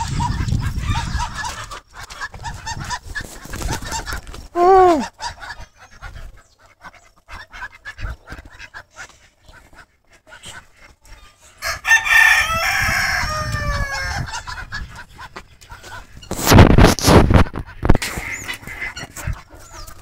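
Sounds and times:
chicken clucks: 0.0s - 20.0s
rooster crowing: 11.6s - 14.3s.

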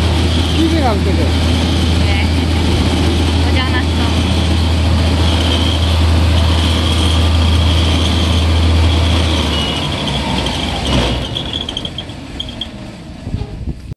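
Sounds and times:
rice milling machine humming: 0.0s - 12.4s
machine high whine: 0.0s - 13.0s.

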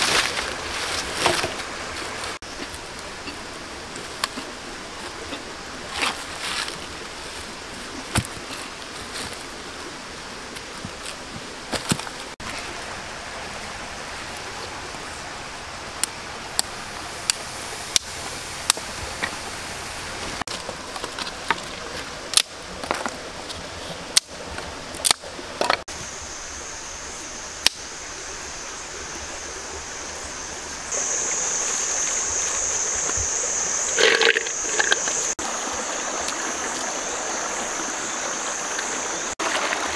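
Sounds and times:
small stream rushing: 0.0s - 39.9s
rocks and sticks knocking: 8.0s - 9.4s.

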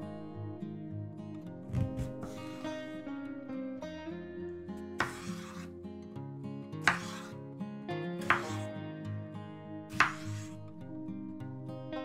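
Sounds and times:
acoustic guitar music: 0.0s - 12.0s
knife cutting on cutting board: 1.7s - 2.6s, 5.0s - 5.7s, 6.8s - 7.3s, 8.2s - 8.7s, 9.9s - 10.5s
knife knocking on board: 5.0s - 5.5s, 8.3s - 8.6s, 10.0s - 10.4s.

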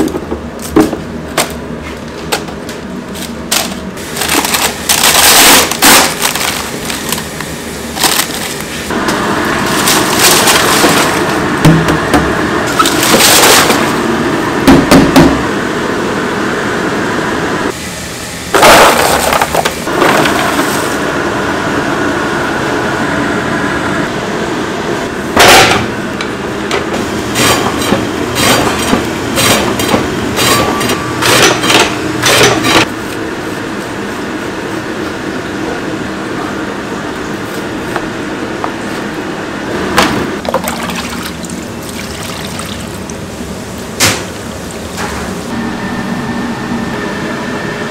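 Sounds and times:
slicing machine running: 3.0s - 47.9s.

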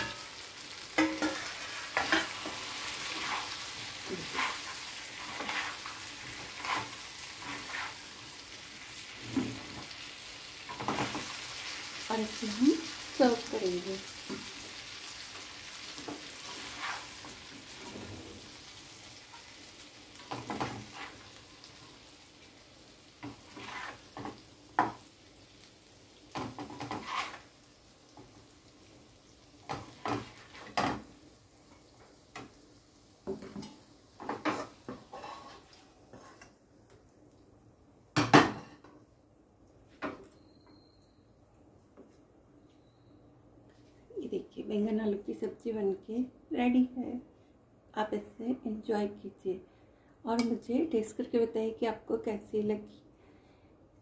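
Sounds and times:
metal spatula scraping pan: 0.0s - 8.2s, 16.4s - 18.2s, 20.3s - 21.4s, 23.3s - 24.3s, 26.7s - 27.5s, 34.3s - 36.5s
light sizzle: 0.0s - 41.2s.

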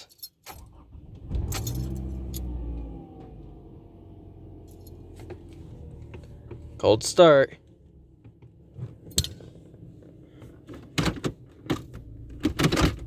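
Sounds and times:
car engine revving then idling: 0.7s - 6.9s.

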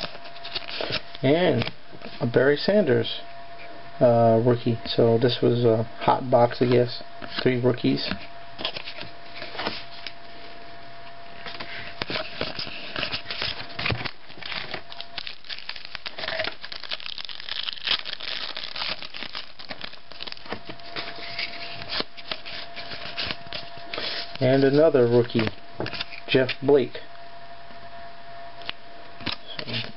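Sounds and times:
foil wrapper crinkling and tearing: 0.0s - 1.7s, 11.5s - 24.7s.

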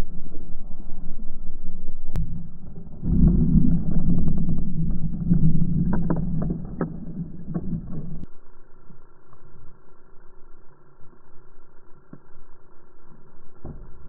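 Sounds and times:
slowed scooter engine drone: 0.0s - 14.0s.

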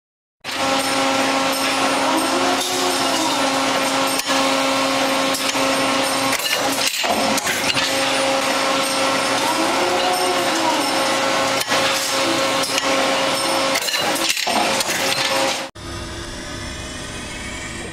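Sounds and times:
spring forming machine humming: 0.5s - 17.9s
sharp machine clicks: 5.3s - 8.1s
faint machine whine: 15.2s - 17.9s.

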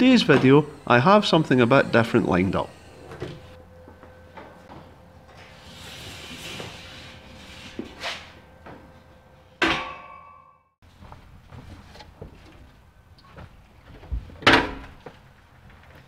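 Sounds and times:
sharp metallic knocks: 9.6s - 10.6s.

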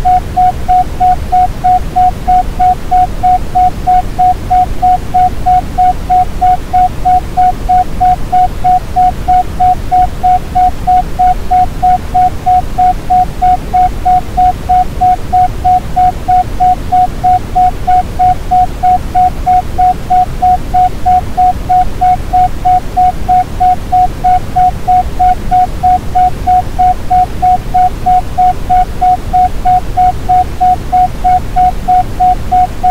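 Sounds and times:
deep steady hiss: 0.0s - 32.9s
pulsing beep tone: 0.0s - 32.9s.

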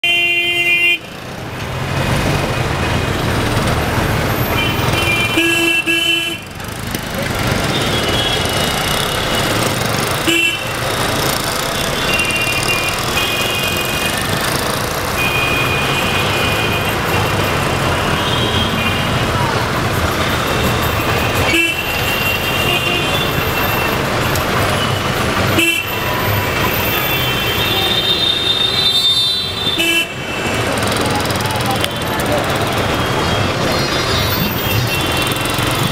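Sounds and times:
vehicle horns honking: 0.0s - 1.1s, 4.3s - 6.5s, 7.6s - 10.9s, 11.7s - 14.5s, 15.1s - 17.3s, 18.0s - 19.3s, 20.5s - 24.0s, 24.7s - 30.8s
traffic engines and road noise: 0.0s - 35.9s.

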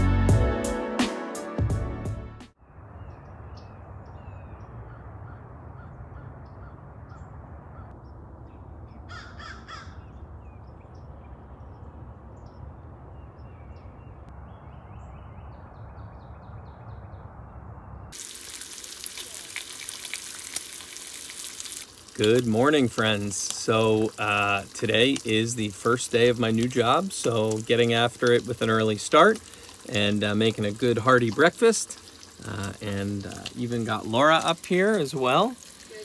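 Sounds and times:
birds calling: 3.0s - 18.7s
harsh cawing call: 9.1s - 10.1s
bacon sizzling in a frying pan: 18.2s - 36.0s.

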